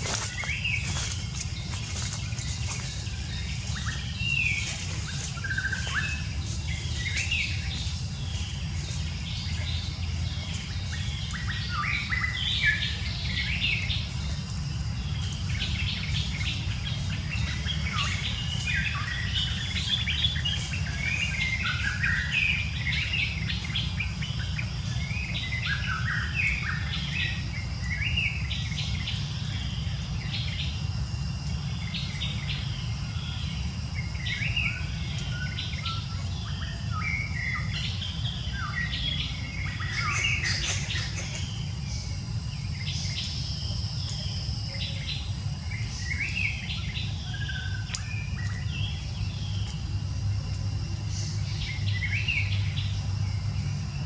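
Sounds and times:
high chirping and whistled calls: 0.0 - 29.6, 31.9 - 49.8.

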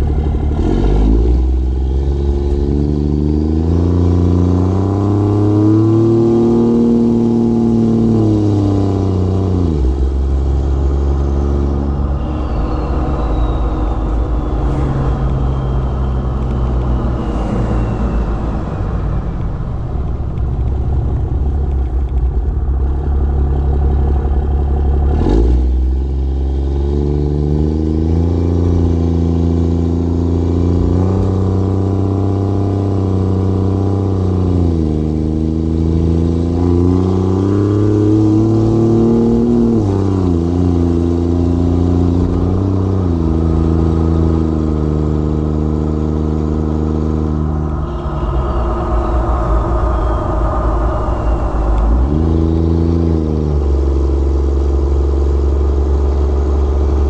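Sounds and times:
diesel engine accelerating: 0.0 - 57.0.

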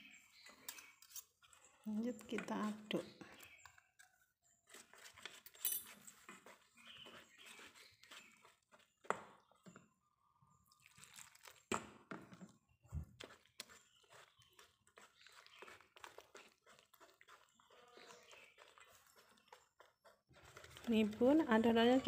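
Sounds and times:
whisk scraping in metal bowl: 4.7 - 9.1, 13.2 - 22.0.

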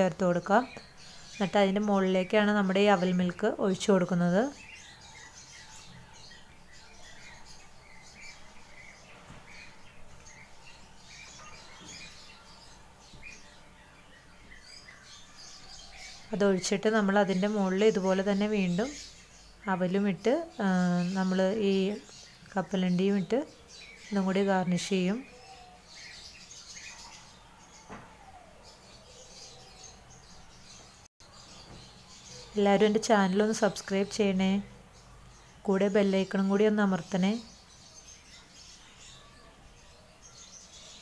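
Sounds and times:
faint birds chirping: 0.0 - 41.0.

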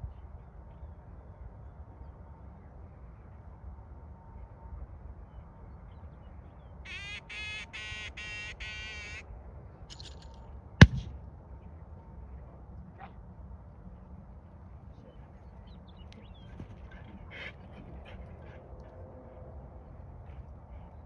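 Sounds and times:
duck call blowing: 6.9 - 9.2
sharp gunshot: 10.8 - 11.2.

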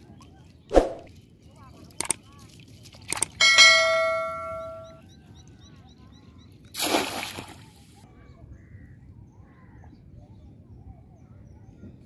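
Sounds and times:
bell chime ringing: 3.4 - 5.0
trap splashing into water: 6.7 - 7.7.

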